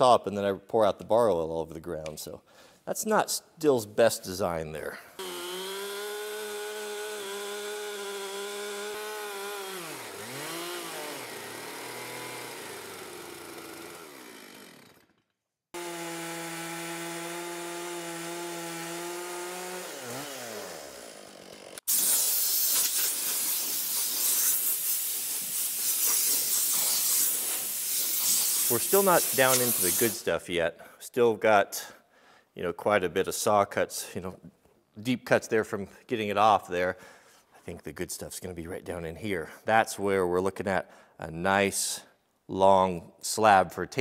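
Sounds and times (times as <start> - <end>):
chainsaw cutting wood: 5.2 - 30.3
loud steady hiss: 21.9 - 30.3.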